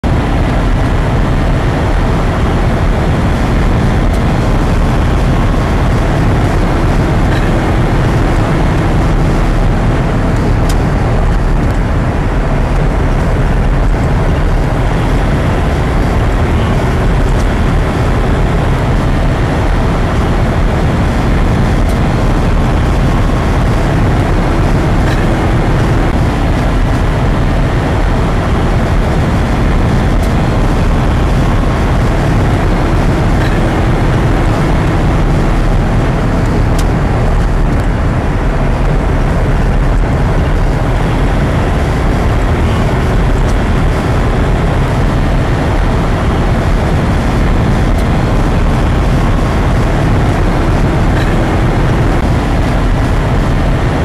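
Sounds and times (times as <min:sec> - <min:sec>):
car cabin road and engine noise: 0:00.0 - 0:54.0.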